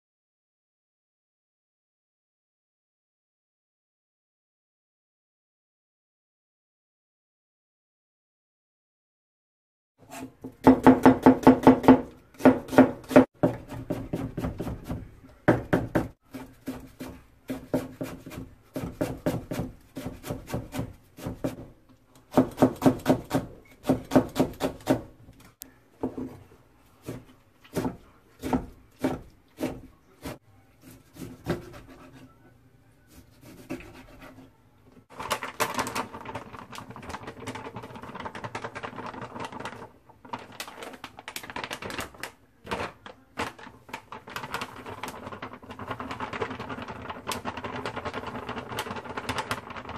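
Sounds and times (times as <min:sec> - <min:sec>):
knife chopping on plastic board: 0:10.1 - 0:21.7, 0:22.3 - 0:25.2, 0:27.0 - 0:32.2.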